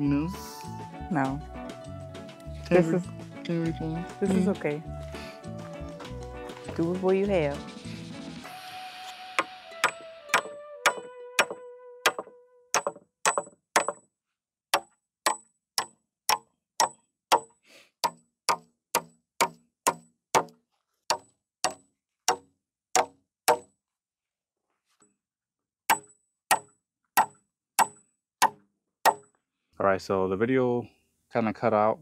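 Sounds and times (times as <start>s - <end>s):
hammer striking nails into wood: 9.8s - 14.0s, 14.7s - 23.7s, 25.9s - 29.3s.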